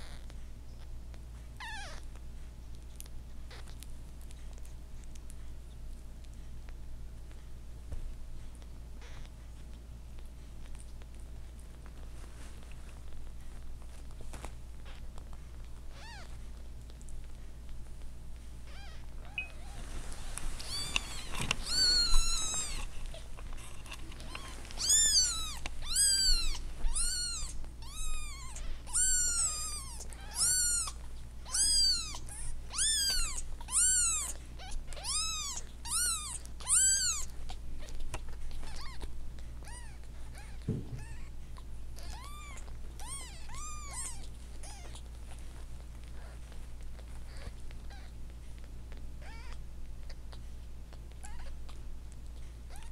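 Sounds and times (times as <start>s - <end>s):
kittens mewing: 18.7s - 38.0s, 38.6s - 45.1s.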